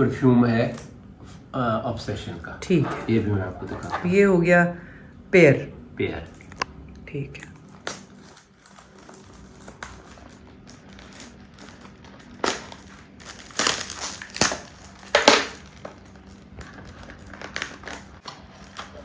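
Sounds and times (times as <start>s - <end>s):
cardboard box crunching: 8.3s - 15.1s.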